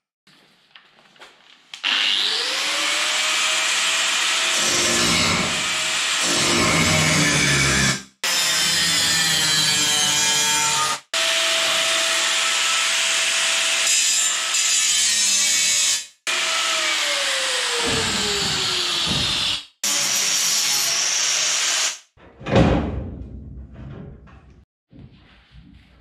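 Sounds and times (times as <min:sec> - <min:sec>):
angle grinder grinding steel: 0:01.8 - 0:22.0
heavy clunk: 0:22.2 - 0:24.6.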